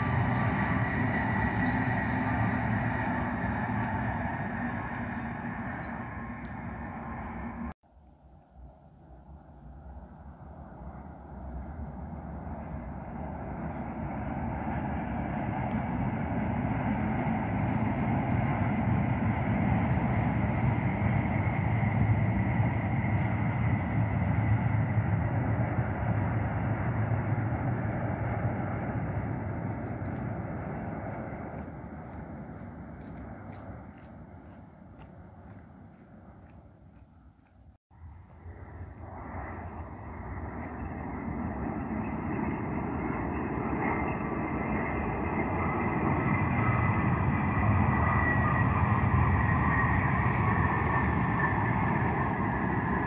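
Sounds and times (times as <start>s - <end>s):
car engine and tyre noise: 0.0s - 53.0s
faint steady whine: 0.0s - 53.0s
train passing with rushing rumble: 0.0s - 53.0s
thin high whine: 38.0s - 53.0s.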